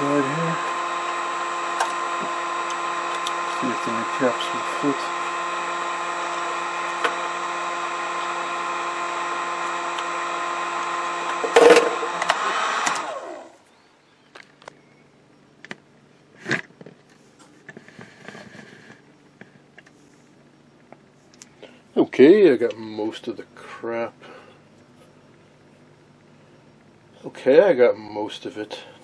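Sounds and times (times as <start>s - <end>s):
power tool motor whine: 0.0s - 13.7s.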